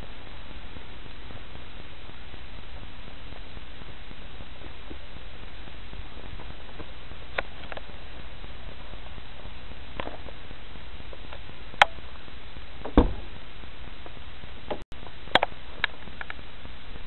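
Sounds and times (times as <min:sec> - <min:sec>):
steady hiss: 0:00.0 - 0:17.0
car door clicks and knocks: 0:12.9 - 0:13.3.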